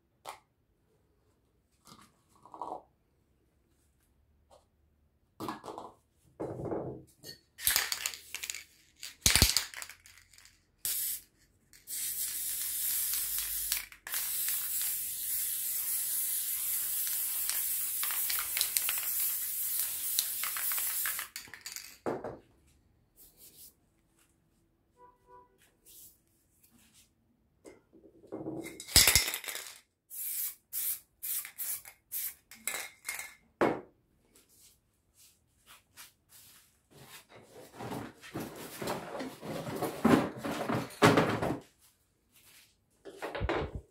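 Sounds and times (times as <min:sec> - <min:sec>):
spray paint can hissing: 0:10.8 - 0:21.5, 0:30.1 - 0:32.4.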